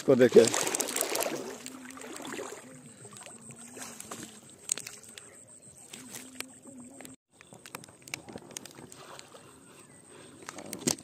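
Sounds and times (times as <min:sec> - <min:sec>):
paddles splashing in water: 0:00.0 - 0:09.8
faint wavering hum: 0:01.3 - 0:07.2.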